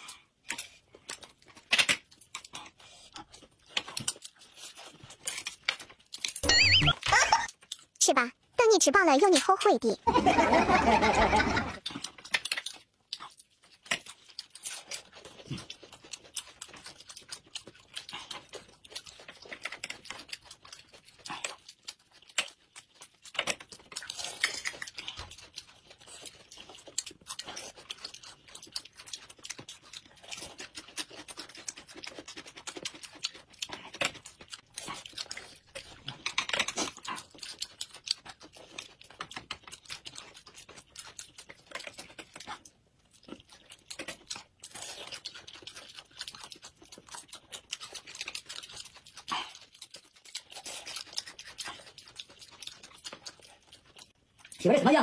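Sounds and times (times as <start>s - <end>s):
people chewing buns: 0.0s - 55.0s
person speaking: 6.4s - 10.2s, 54.6s - 55.0s
crunching raw cucumber: 11.7s - 54.6s.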